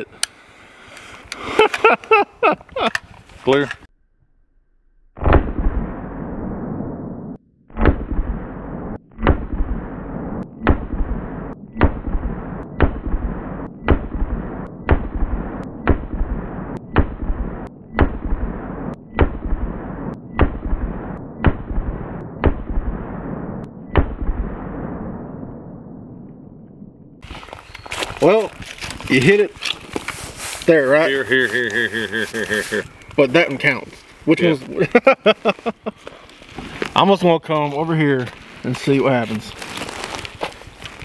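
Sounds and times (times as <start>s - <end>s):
rifle shots echoing: 7.8s - 25.6s.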